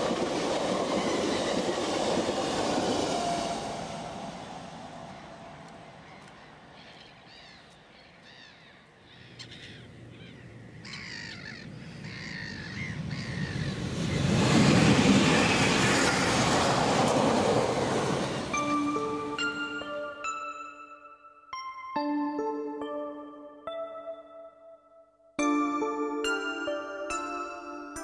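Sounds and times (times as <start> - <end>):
electric train passing: 0.0 - 7.5, 11.0 - 24.2, 25.4 - 28.0
birds calling: 5.1 - 14.3
music: 18.5 - 28.0.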